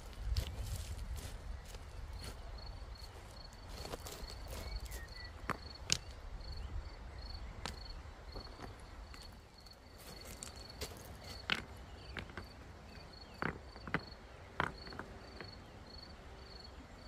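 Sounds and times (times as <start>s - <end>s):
cricket chirping: 0.1s - 17.0s
stones knocking together: 13.3s - 15.1s.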